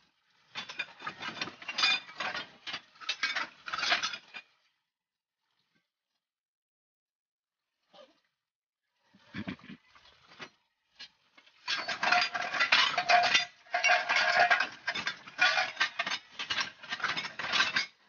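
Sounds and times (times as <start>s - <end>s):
scrap metal bars clanking: 0.5s - 4.4s, 11.6s - 18.0s.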